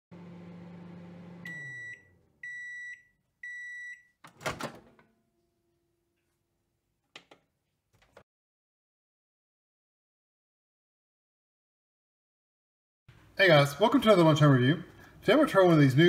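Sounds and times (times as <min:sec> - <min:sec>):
microwave oven humming: 0:00.1 - 0:02.8
microwave long beeps: 0:00.5 - 0:04.2.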